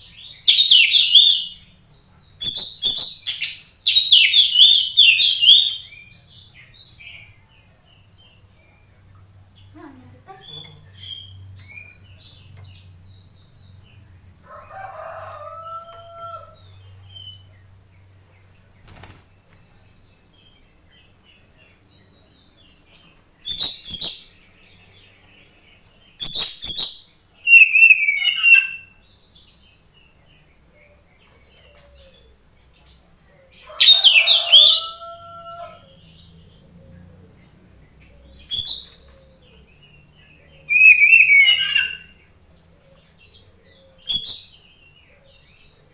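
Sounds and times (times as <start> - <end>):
wings fluttering: 18.8 - 19.6.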